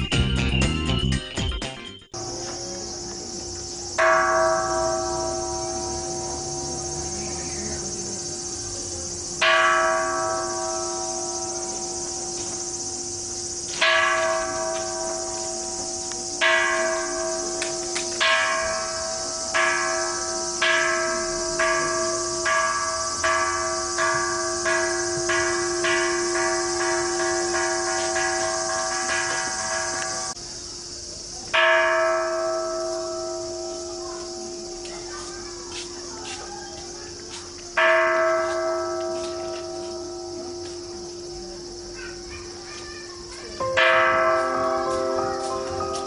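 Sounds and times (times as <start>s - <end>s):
high insect drone: 2.1s - 46.0s
temple bell ringing: 3.2s - 30.4s, 31.5s - 46.0s.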